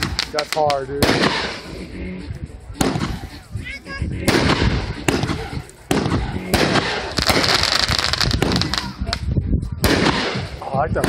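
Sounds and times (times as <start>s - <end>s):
firework bangs: 0.0s - 1.7s, 2.8s - 3.4s, 4.2s - 9.2s, 9.8s - 11.0s
hissing firework crackle: 0.0s - 1.7s, 4.3s - 9.2s.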